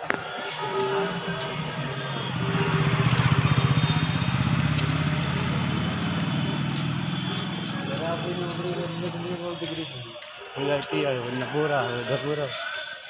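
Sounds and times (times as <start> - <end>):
motorcycle passing by: 0.6 - 9.5.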